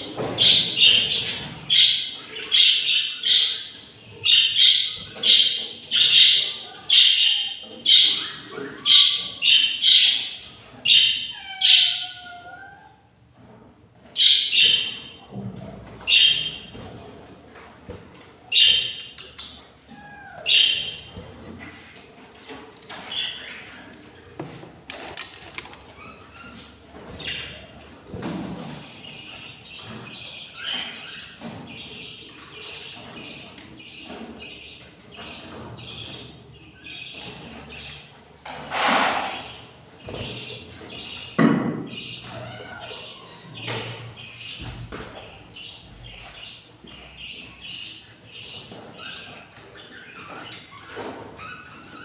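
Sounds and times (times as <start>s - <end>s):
budgerigars chirping: 0.0s - 12.1s, 14.2s - 15.2s, 16.0s - 16.8s, 18.5s - 19.6s, 20.5s - 21.2s.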